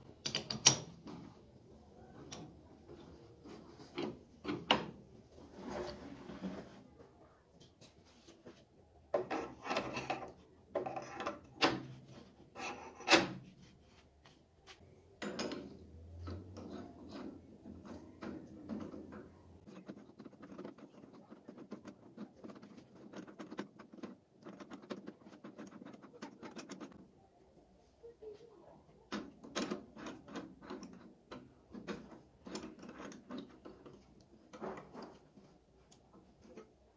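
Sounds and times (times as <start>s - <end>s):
metal scraping and clattering: 9.2s - 13.5s.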